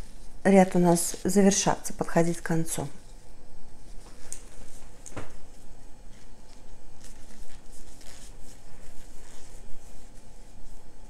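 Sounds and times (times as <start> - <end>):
cord scraping through crochet stitches: 7.0 - 9.5.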